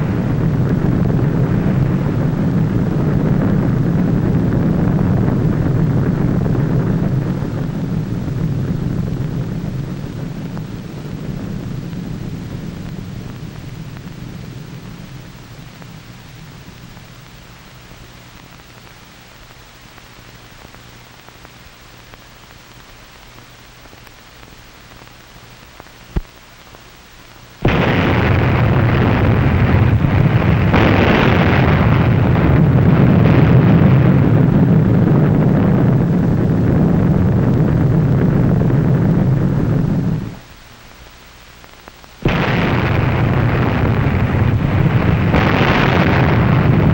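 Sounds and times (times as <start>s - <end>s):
explosion roar: 0.0s - 17.2s, 27.6s - 40.4s, 42.2s - 46.9s
faint hiss: 0.0s - 46.9s.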